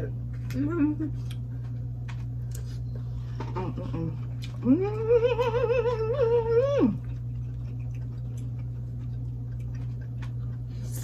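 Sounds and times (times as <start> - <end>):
faint chewing: 0.2 - 11.0
woman humming: 0.5 - 1.2, 3.4 - 7.0.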